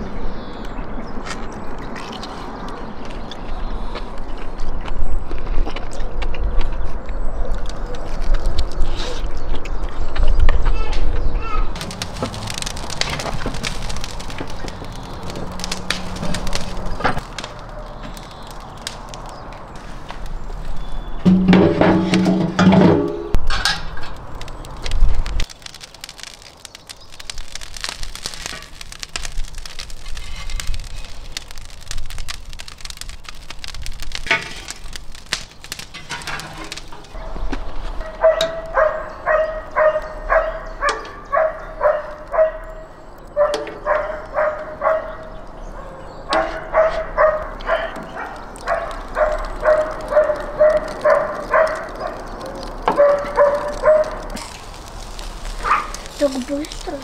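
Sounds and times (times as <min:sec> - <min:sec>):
coals crackling: 0:00.4 - 0:57.0
metal poker scraping coals: 0:11.8 - 0:40.1, 0:46.3 - 0:57.0
dog barking: 0:38.0 - 0:42.8, 0:43.4 - 0:45.2, 0:45.8 - 0:52.3, 0:52.9 - 0:54.3, 0:55.6 - 0:56.0.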